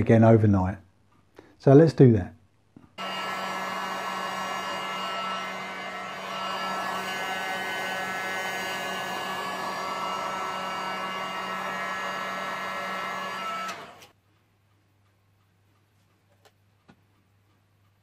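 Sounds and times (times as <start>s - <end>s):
hot air gun fan whining: 3.0s - 14.2s.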